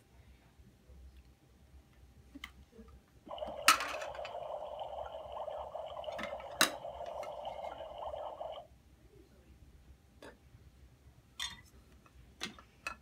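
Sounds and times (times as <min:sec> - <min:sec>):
toy stove electronic hiss: 0:03.3 - 0:08.6.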